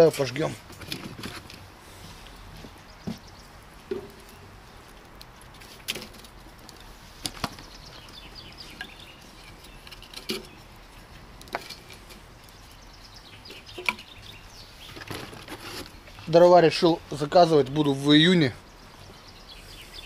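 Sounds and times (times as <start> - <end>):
firewood knocking onto fire: 2.6 - 4.5, 5.1 - 12.5, 13.5 - 14.1.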